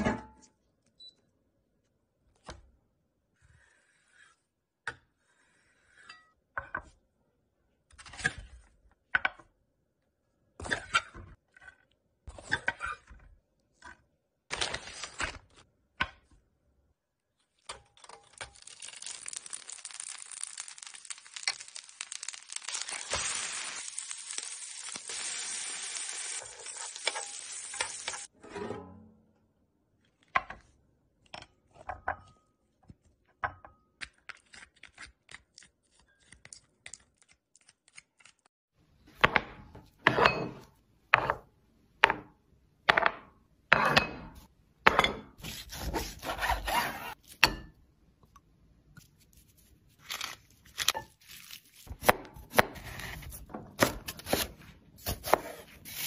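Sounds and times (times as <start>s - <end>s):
vegetables sizzling in hot pan: 18.9s - 28.3s
knife chopping on cutting board: 51.9s - 56.0s.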